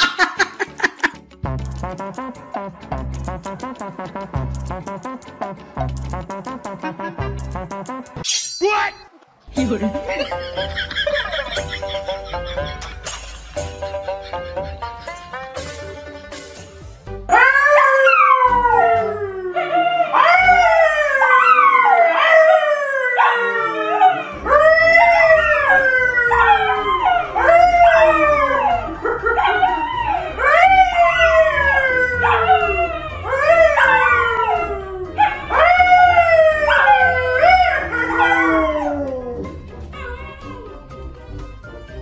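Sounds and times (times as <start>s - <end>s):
dog howling: 17.3s - 40.8s
man howling: 17.3s - 40.8s.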